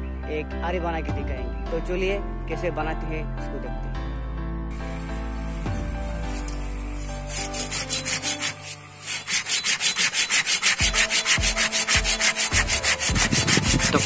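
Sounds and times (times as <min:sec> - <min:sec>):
background music: 0:00.0 - 0:14.0
hand saw sawing bamboo: 0:04.9 - 0:14.0.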